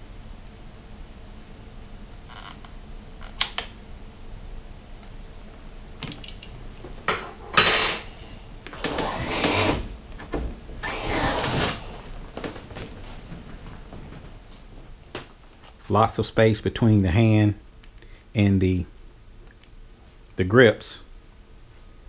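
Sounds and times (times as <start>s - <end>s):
scraping and rustling: 10.8s - 14.9s.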